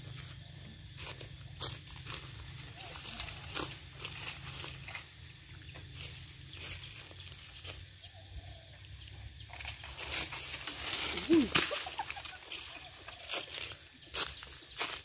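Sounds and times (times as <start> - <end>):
leaves and branches rustling: 0.0 - 15.0
faint bird chirps: 10.9 - 15.0.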